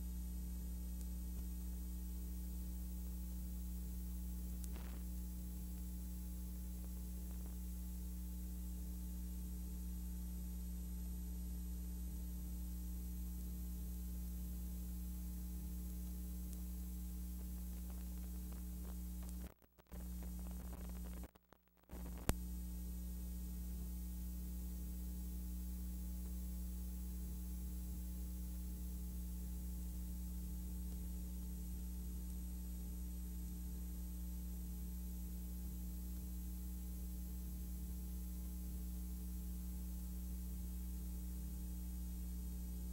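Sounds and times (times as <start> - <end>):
electrical mains hum with hiss: 0.0 - 42.9
click: 1.0 - 1.5, 4.6 - 5.0, 16.0 - 16.7, 17.4 - 22.4, 30.9 - 31.5.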